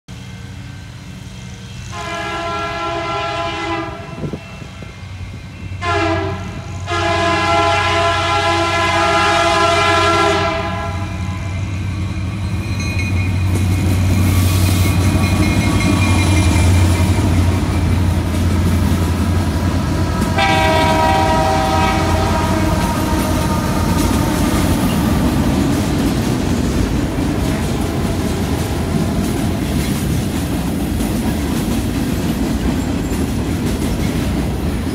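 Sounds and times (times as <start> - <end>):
locomotive air horn blasts: 1.9 - 4.7, 5.8 - 11.6, 20.3 - 24.6
wheels clattering on rails: 11.6 - 34.9
diesel engines deep rumble: 13.5 - 34.9.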